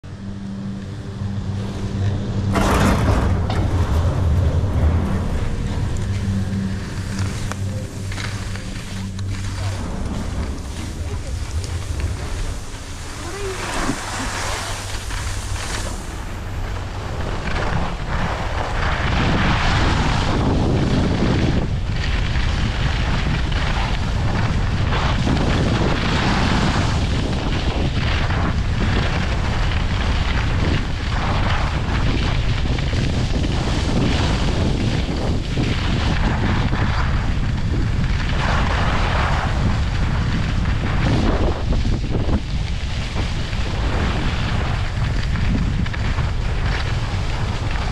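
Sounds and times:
wind buffeting microphone: 0.0 - 47.9
skis hissing on packed snow: 6.8 - 32.1.

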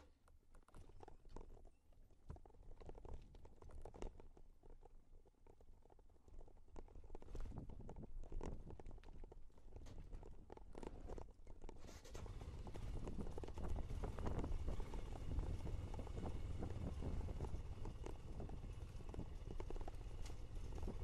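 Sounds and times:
stones knocking and rattling: 0.1 - 21.0
motorcycle engine at low revs: 11.8 - 21.0.

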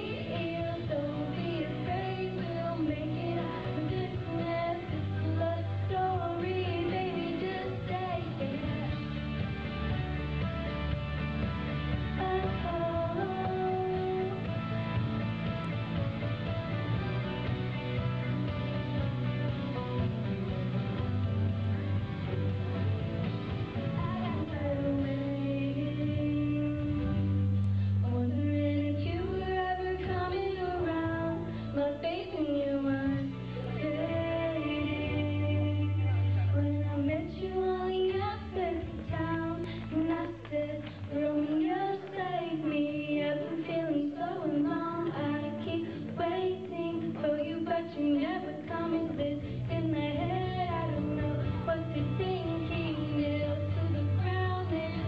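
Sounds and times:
girl singing into a microphone: 0.0 - 9.0, 12.0 - 14.5, 24.0 - 55.0
instrumental accompaniment with bass: 0.0 - 55.0.

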